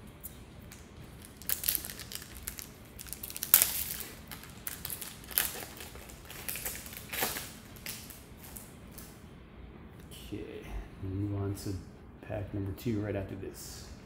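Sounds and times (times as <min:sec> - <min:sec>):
foil wrapper crinkling: 0:01.2 - 0:09.1.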